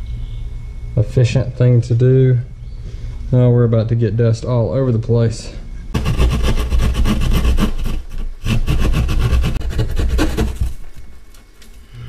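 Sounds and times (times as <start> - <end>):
power tool cutting drywall: 6.0 - 10.8.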